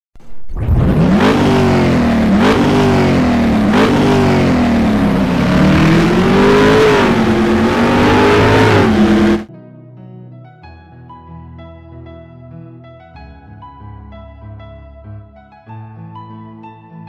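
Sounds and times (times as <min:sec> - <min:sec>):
car engine accelerating: 0:00.2 - 0:09.5.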